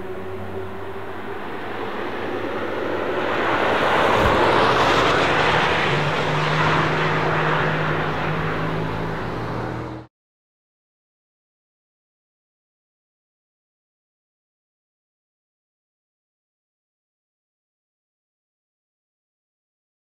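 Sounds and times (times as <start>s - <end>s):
car passing with tyre and wind noise: 0.0s - 10.1s.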